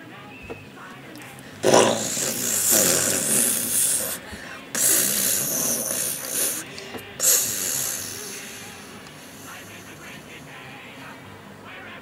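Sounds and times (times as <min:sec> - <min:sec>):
child making rocket sound: 0:01.6 - 0:04.2, 0:04.8 - 0:06.6, 0:07.2 - 0:08.8.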